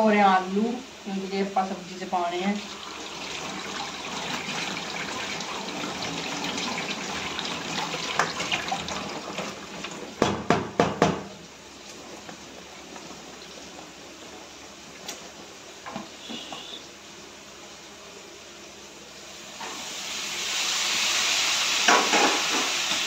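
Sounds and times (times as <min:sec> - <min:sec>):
tap water running into a bowl: 0:02.6 - 0:10.3.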